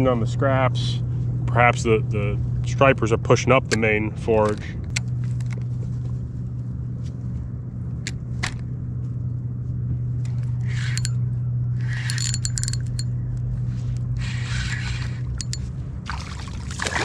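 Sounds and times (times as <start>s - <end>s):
steady low hum: 0.0s - 17.0s
reel clicks: 10.2s - 11.2s, 11.8s - 13.1s, 14.2s - 15.7s
fishing reel whirring: 10.3s - 11.2s, 11.8s - 13.1s, 14.2s - 15.7s.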